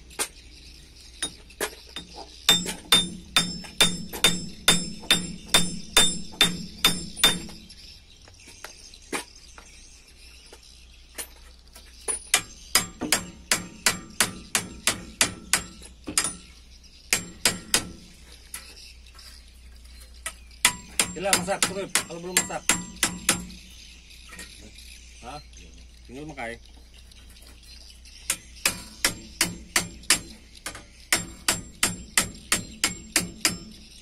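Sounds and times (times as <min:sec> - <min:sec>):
hammer clanging on metal: 0:01.2 - 0:07.6, 0:12.1 - 0:16.5, 0:20.6 - 0:23.6, 0:28.3 - 0:33.8.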